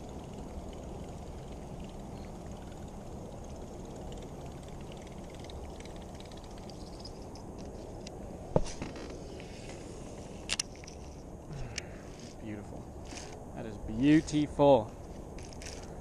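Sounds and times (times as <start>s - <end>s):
low background noise: 0.0s - 16.0s
person speaking: 13.6s - 15.0s.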